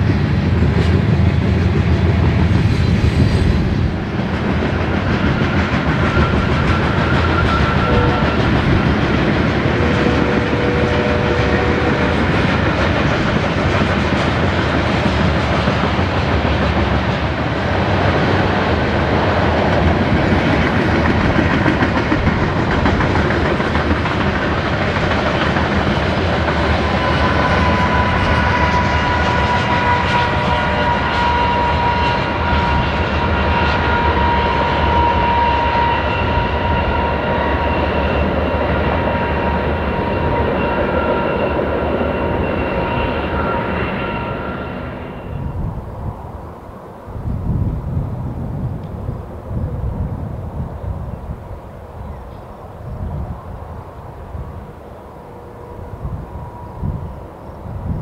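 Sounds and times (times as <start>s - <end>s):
freight train rumbling on rails: 0.0s - 58.0s
high-pitched squeal: 4.7s - 13.5s, 25.9s - 46.2s.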